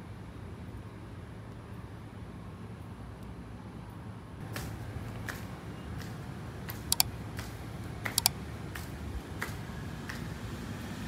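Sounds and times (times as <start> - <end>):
sharp double clicks: 6.7 - 8.4.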